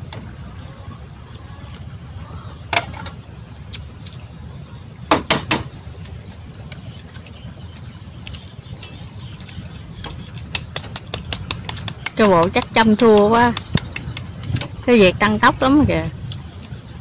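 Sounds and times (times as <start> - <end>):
eggshells cracking: 10.4 - 14.3.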